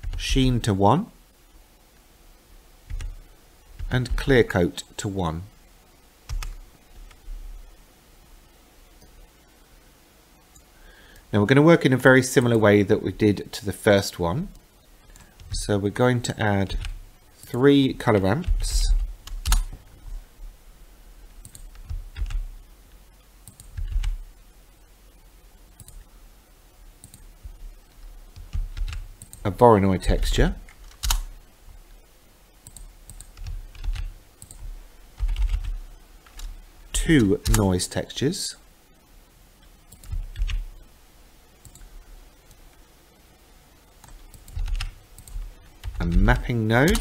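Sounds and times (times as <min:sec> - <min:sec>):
key presses: 0:18.4 - 0:19.8
computer keyboard clicks: 0:19.2 - 0:19.8, 0:21.4 - 0:22.4, 0:23.5 - 0:24.2, 0:28.4 - 0:29.4, 0:30.8 - 0:31.3, 0:32.6 - 0:36.5, 0:37.2 - 0:37.6, 0:44.0 - 0:46.2.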